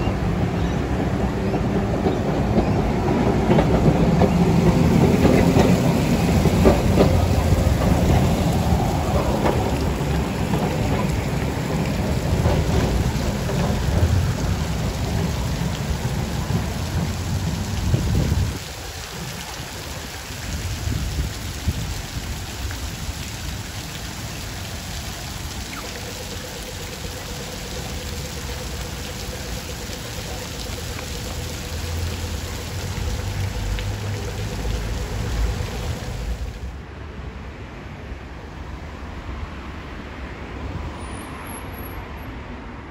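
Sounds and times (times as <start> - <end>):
tram rumbling along tracks: 0.0 - 20.8
street traffic noise: 0.0 - 42.9
wind buffeting microphone: 2.5 - 19.7.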